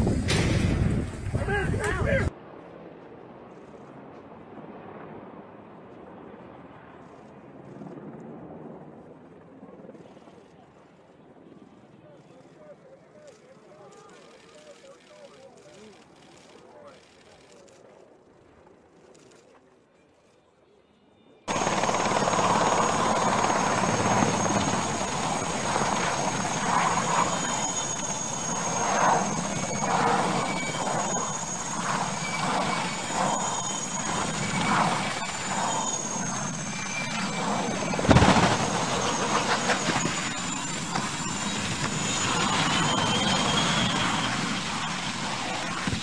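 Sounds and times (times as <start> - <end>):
loud crash: 0.0 - 1.4
helicopter rotor noise: 0.0 - 2.3, 7.2 - 19.6, 21.5 - 46.0
high wavering turbine whine: 21.5 - 46.0.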